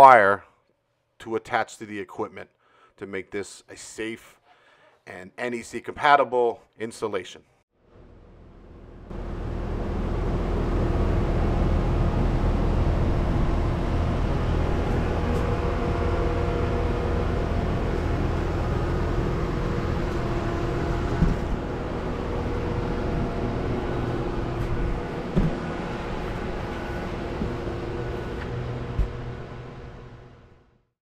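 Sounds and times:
pool equipment humming: 8.6s - 30.6s.

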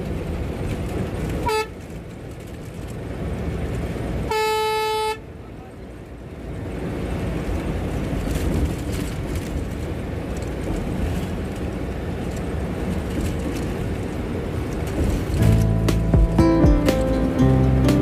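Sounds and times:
rattles and clicks: 0.0s - 3.1s, 7.4s - 17.2s
engine and tyre rumble: 0.0s - 18.0s.

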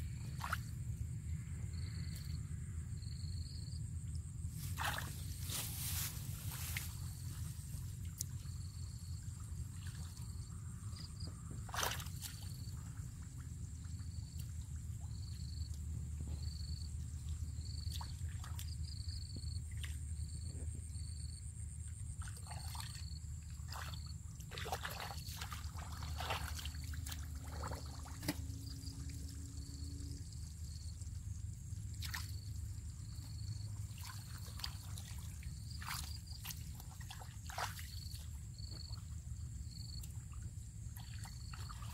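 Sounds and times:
feet squelching in muddy water: 0.3s - 0.7s, 4.6s - 10.4s, 11.0s - 13.5s, 17.6s - 19.1s, 22.1s - 29.0s, 31.9s - 39.0s, 39.8s - 41.9s
water splashes: 0.3s - 0.7s, 4.6s - 13.4s, 22.2s - 29.2s, 31.9s - 33.2s, 33.8s - 38.4s, 40.9s - 41.9s.

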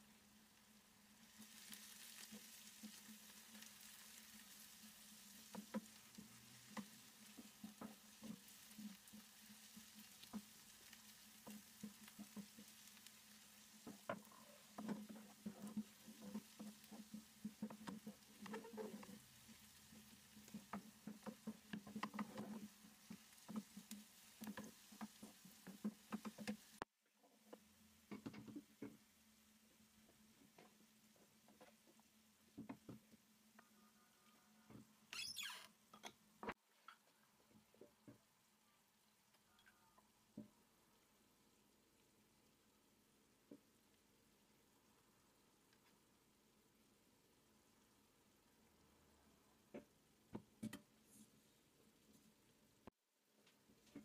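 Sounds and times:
onions sizzling in a frying pan: 1.0s - 26.8s.

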